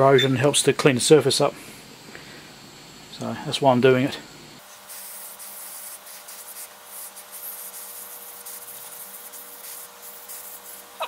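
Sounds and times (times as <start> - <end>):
heat gun blowing air: 4.6 - 11.0.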